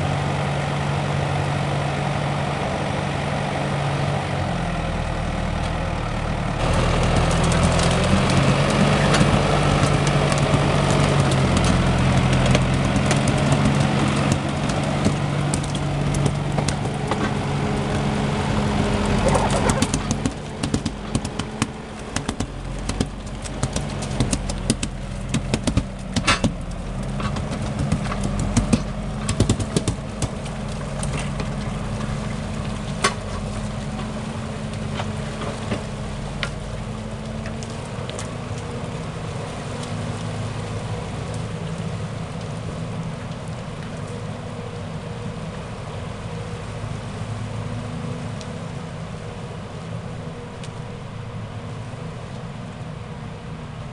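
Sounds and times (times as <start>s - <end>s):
tractor diesel engine running: 0.0s - 53.9s
sharp knocks and cracks: 6.6s - 18.3s, 19.0s - 41.8s.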